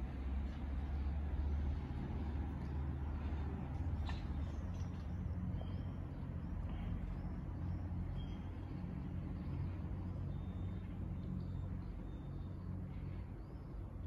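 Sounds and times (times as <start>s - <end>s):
distant road traffic rumble: 0.0s - 14.0s
faint bird chirps: 4.1s - 14.0s.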